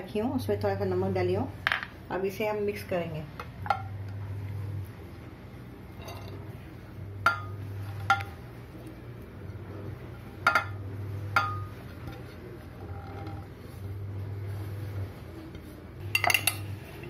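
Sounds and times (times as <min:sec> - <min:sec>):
low hum: 0:03.4 - 0:17.0
glass dishes clinking: 0:07.2 - 0:08.3, 0:10.4 - 0:10.8, 0:16.1 - 0:16.7.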